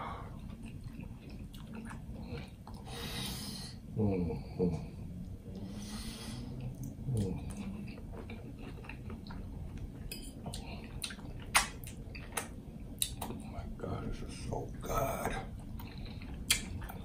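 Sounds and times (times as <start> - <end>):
wet chewing and lip smacks: 0.4 - 2.8, 6.6 - 13.5, 15.6 - 17.0.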